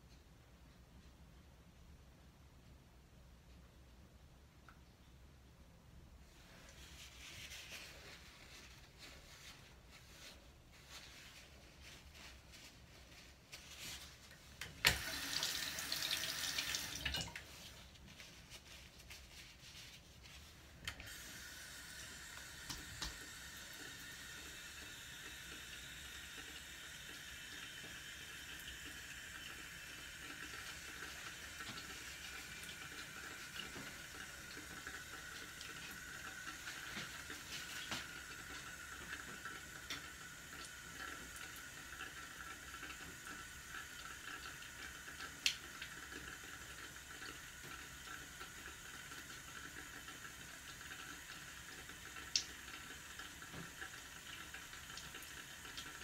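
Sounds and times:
faint room hiss: 0:00.0 - 0:56.0.

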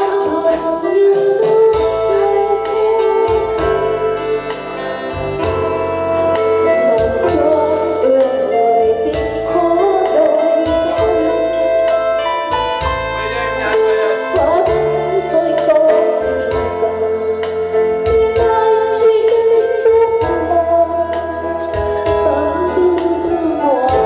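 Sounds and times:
woman singing into microphone: 0:00.0 - 0:04.8, 0:05.4 - 0:12.2, 0:13.7 - 0:24.0
keyboard backing music: 0:00.0 - 0:24.0.

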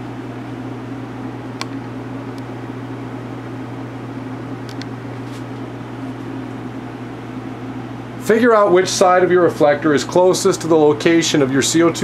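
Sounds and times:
electrical hum: 0:00.0 - 0:12.0
fan noise: 0:00.0 - 0:12.0.

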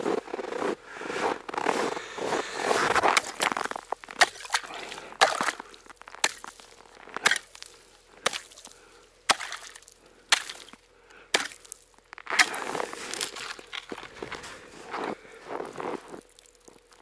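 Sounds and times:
ice chisel striking ice: 0:03.0 - 0:08.6, 0:09.3 - 0:14.1.

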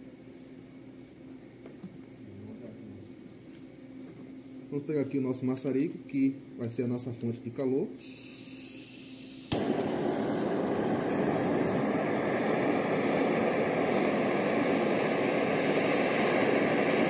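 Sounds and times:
torch flame hissing: 0:08.0 - 0:17.0
torch igniter click: 0:09.4 - 0:17.0.

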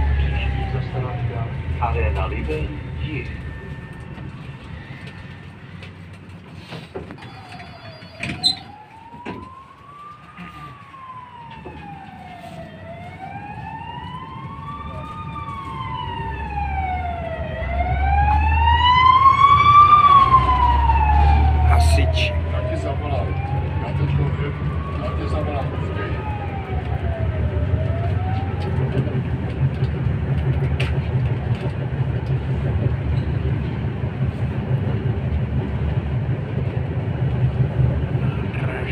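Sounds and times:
fire engine siren wailing: 0:00.0 - 0:38.9.

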